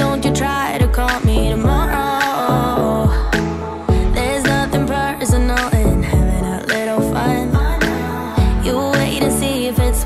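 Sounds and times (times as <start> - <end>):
pop song with steady beat: 0.0 - 10.0
deep sliding bass notes: 2.5 - 7.2.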